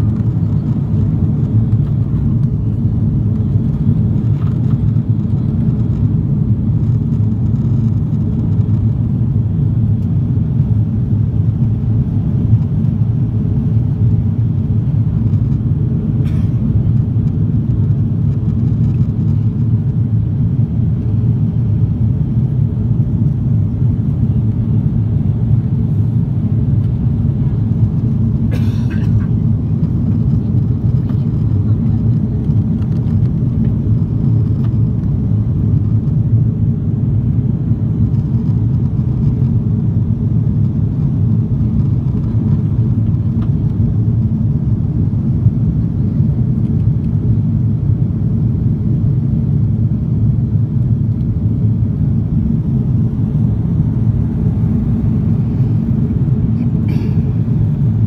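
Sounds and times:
airplane cabin roar: 0.0s - 58.0s.

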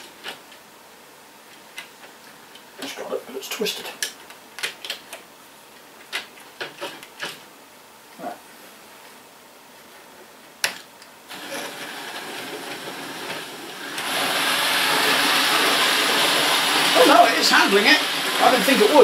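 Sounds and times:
small electric motor whirring: 11.3s - 19.0s.

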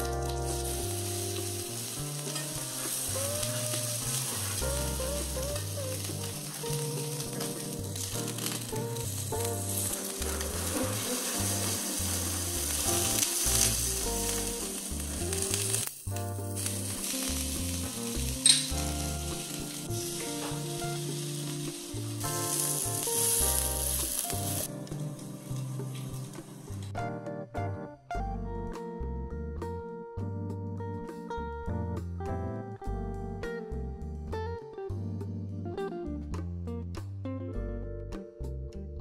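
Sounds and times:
meat sizzling in a pan: 0.0s - 26.8s
background music: 0.0s - 39.0s.

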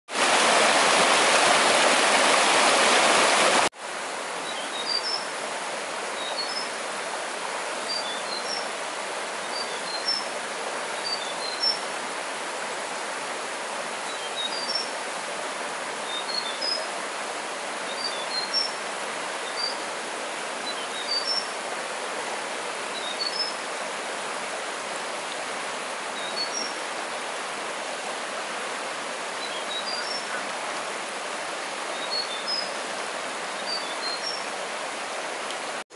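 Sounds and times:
flowing water rushing: 0.1s - 35.9s
bird chirping: 29.4s - 30.4s, 33.6s - 34.4s.

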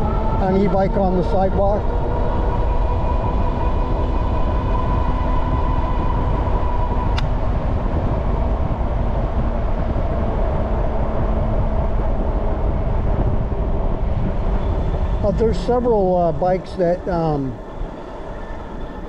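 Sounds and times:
electric motor whine: 0.0s - 19.0s
wind rumble on microphone: 0.0s - 19.0s
click: 7.1s - 7.3s.

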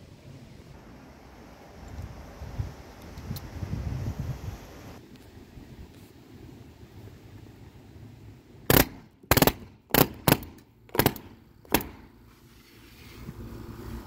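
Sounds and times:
pneumatic nailer hammering: 8.7s - 12.1s.

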